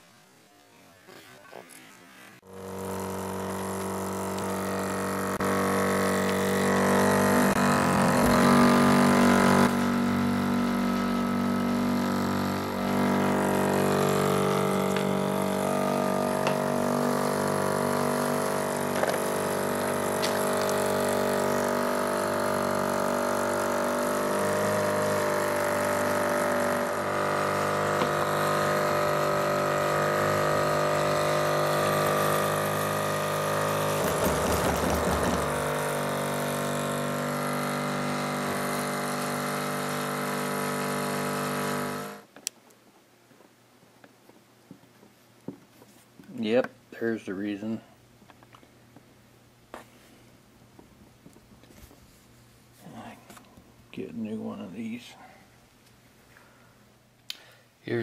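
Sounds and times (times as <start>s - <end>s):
electric pump humming: 2.4s - 42.3s.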